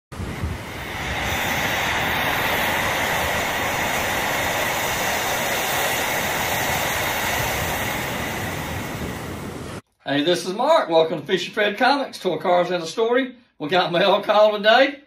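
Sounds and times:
surf washing onto beach: 0:00.1 - 0:09.8.

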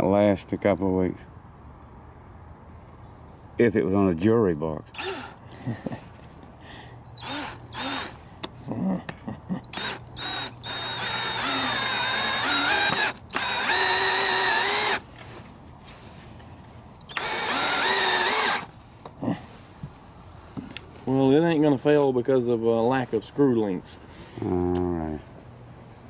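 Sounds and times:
cordless drill motor whining: 0:04.6 - 0:05.4, 0:06.8 - 0:08.3, 0:09.7 - 0:15.0, 0:17.0 - 0:18.7.

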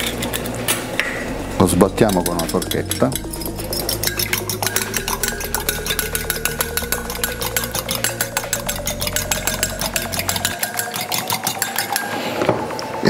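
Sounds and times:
fork clicking against bowl: 0:02.1 - 0:12.2.

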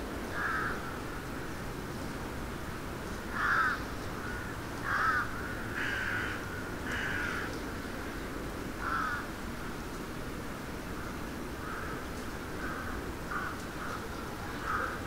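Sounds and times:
crows cawing: 0:00.3 - 0:01.0, 0:03.3 - 0:07.6, 0:08.8 - 0:09.3, 0:11.6 - 0:15.0.

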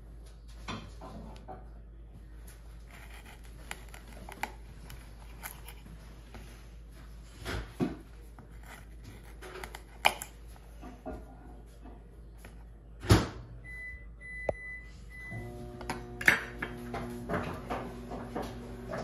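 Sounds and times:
knife cutting carrot: 0:02.8 - 0:06.4, 0:07.8 - 0:10.5.

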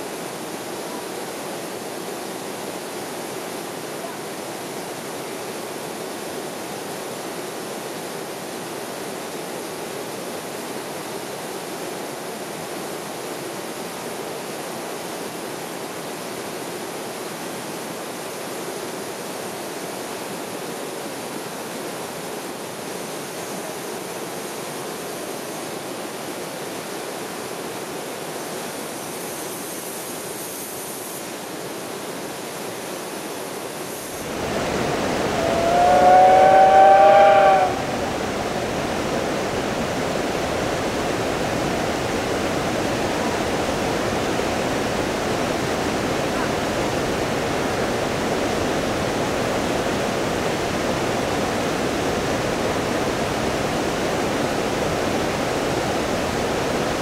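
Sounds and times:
steady rushing noise: 0:33.8 - 0:47.4
deep rumbling noise: 0:34.3 - 0:39.1
steam locomotive whistle: 0:34.6 - 0:38.6.

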